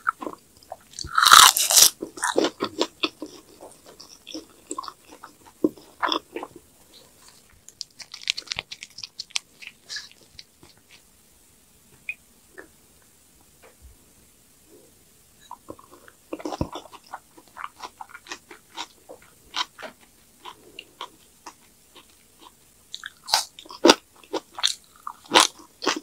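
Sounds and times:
close chewing and crunching: 0.0 - 11.0, 15.5 - 26.0
crisp crackling clicks: 7.3 - 10.8.

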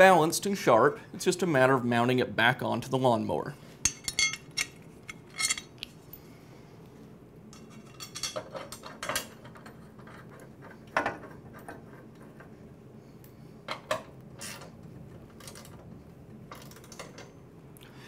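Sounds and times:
metal blade clinking and knocking: 3.9 - 5.7.

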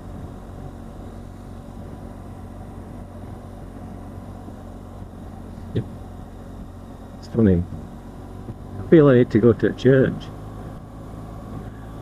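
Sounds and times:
motorcycle engine cruising: 0.0 - 12.0
road noise: 0.0 - 12.0.

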